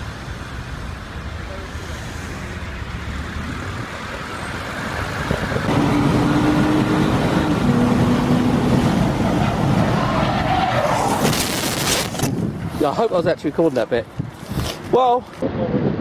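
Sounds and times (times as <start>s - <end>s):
road noise: 0.0s - 16.0s
car engine from inside cabin: 5.7s - 9.0s.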